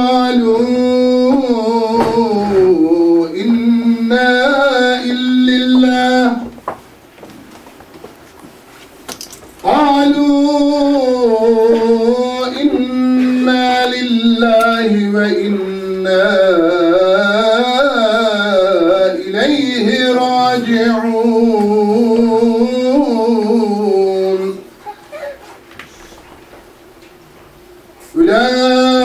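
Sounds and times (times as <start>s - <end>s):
man chanting melodically: 0.0s - 6.6s, 9.6s - 24.8s, 28.1s - 29.0s.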